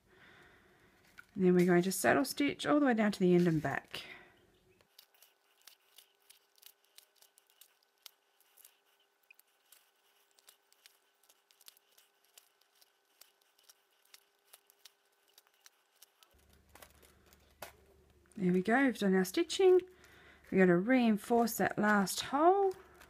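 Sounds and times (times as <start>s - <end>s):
needle and thread through leather: 4.8s - 17.8s.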